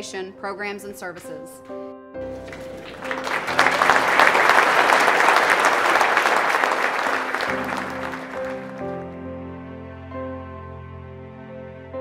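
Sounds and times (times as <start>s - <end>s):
soft background music: 0.0s - 4.9s, 7.4s - 12.0s
audience applauding: 2.3s - 9.2s.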